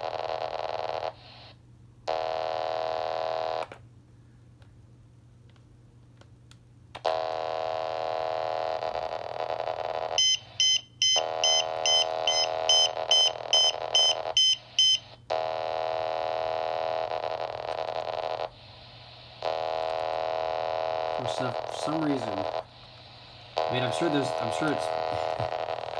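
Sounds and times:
buzzing data tone: 7.1 - 18.6, 19.4 - 25.9
pager receiver beeping: 10.2 - 15.1.

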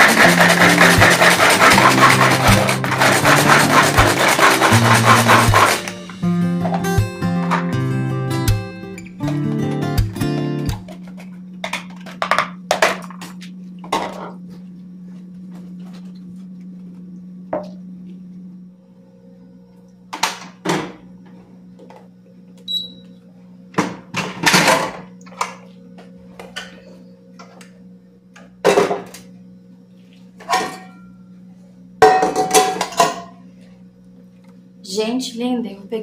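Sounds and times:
pots and pans clattering: 0.0 - 7.7, 30.4 - 31.1, 32.0 - 33.4
steady low hum: 0.0 - 36.0.

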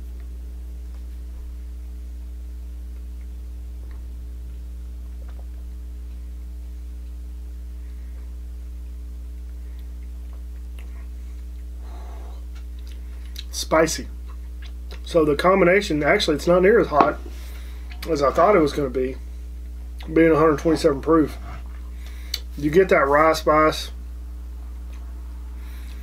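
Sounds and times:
low electrical hum: 0.0 - 26.0
soft breathy noise: 10.9 - 13.4, 24.7 - 26.0.

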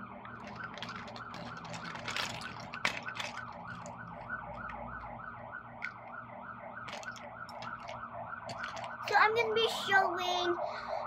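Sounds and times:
siren yelping: 0.1 - 9.2
plastic toys clicking: 0.3 - 4.8, 6.9 - 9.0.

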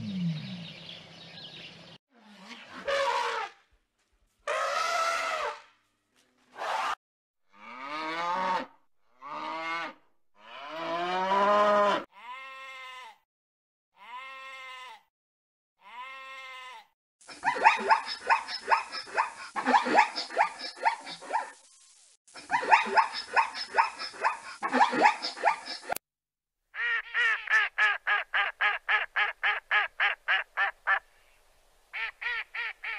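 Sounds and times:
calves bleating: 12.2 - 13.2, 14.0 - 15.0, 15.8 - 16.9.

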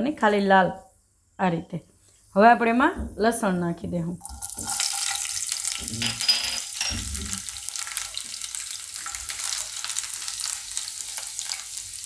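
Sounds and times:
garlic sizzling in hot oil: 4.2 - 12.0.

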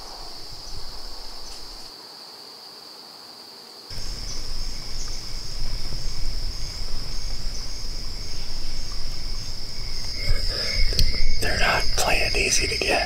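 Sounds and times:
night insects trilling: 0.0 - 13.0
low rumble: 4.0 - 11.6.

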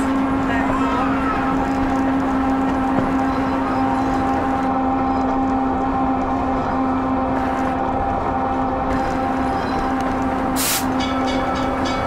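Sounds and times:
rail motorcar droning: 0.0 - 12.0
brief hiss: 10.6 - 10.9.

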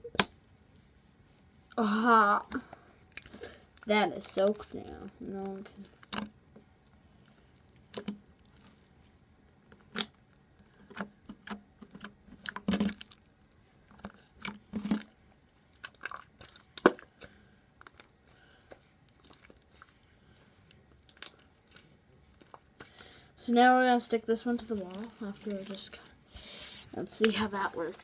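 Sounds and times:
wet slime squelching and popping: 2.5 - 6.7, 7.3 - 9.0, 9.6 - 23.1, 27.0 - 28.0.

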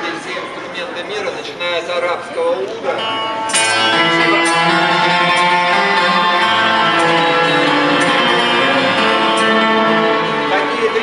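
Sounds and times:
plucked string instrument: 2.9 - 11.0.

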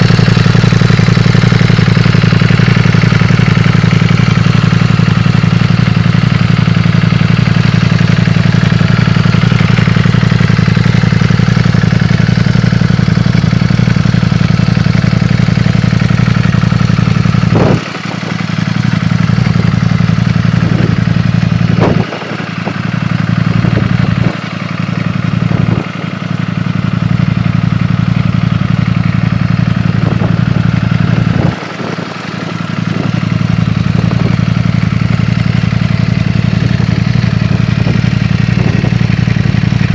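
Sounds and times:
motorcycle engine idling: 0.0 - 39.9.

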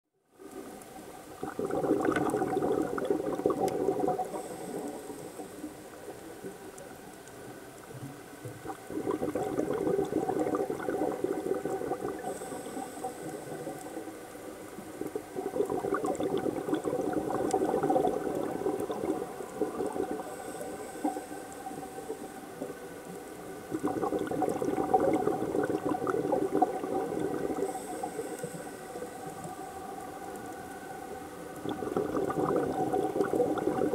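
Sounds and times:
exhaled bubbles underwater: 0.4 - 33.9
regulator inhale hiss: 4.2 - 6.3, 12.1 - 14.9, 20.1 - 23.1, 27.5 - 31.4.

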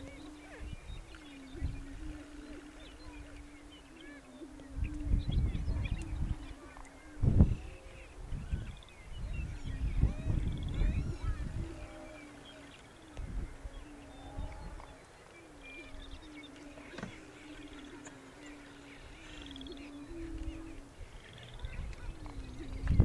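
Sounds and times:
faint high bird calls: 0.0 - 23.0
low hollow bird booming: 15.8 - 18.2.

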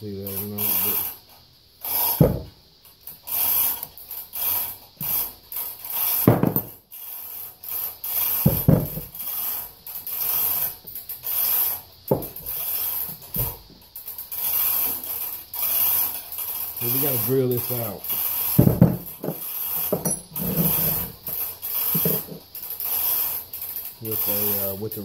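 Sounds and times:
dull knocks on workbench: 2.2 - 2.5, 6.3 - 6.7, 12.1 - 12.3, 18.6 - 19.4
metal part scraping on workbench: 5.9 - 6.8, 8.1 - 13.6, 14.4 - 24.7.

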